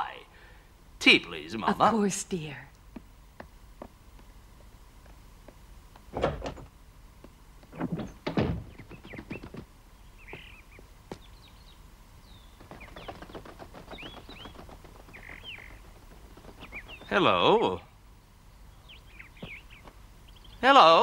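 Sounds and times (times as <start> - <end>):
birds chirping: 0.0 - 21.0
dull thuds: 5.1 - 9.7, 12.4 - 17.3.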